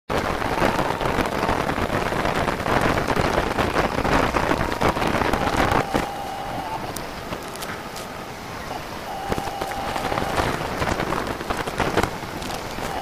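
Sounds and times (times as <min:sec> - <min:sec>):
sped-up printer clicks and chatter: 0:00.1 - 0:13.0
printer motor whines: 0:04.8 - 0:11.7, 0:12.3 - 0:13.0.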